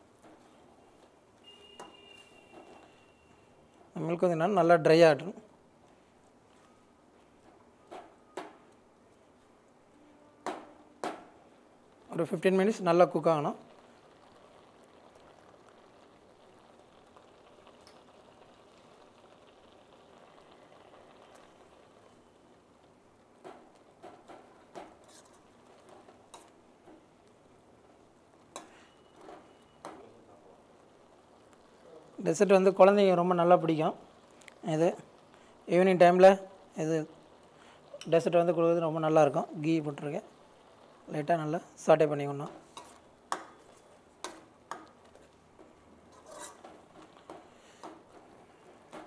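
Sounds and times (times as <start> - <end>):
metal spoon stirring in pan: 23.3 - 27.2, 28.4 - 30.0, 42.0 - 49.0
spatula scraping metal pan: 46.1 - 47.3.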